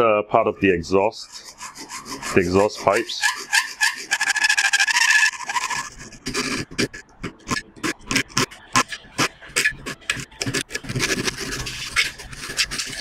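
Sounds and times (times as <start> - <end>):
hacksaw cutting metal rod: 1.4 - 13.0.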